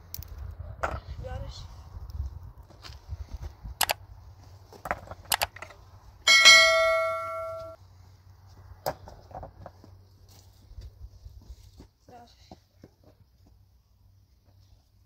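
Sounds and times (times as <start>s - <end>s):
struck metal clang ringing: 6.3s - 7.8s.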